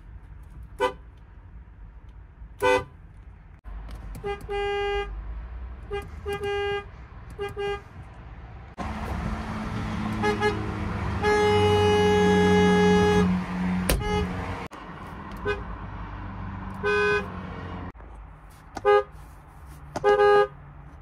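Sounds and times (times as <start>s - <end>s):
car horns honking: 0.7s - 1.2s, 2.6s - 3.0s, 4.1s - 5.2s, 5.8s - 8.1s, 8.8s - 14.7s, 15.3s - 15.8s, 16.6s - 17.9s, 18.8s - 19.2s, 19.9s - 20.6s.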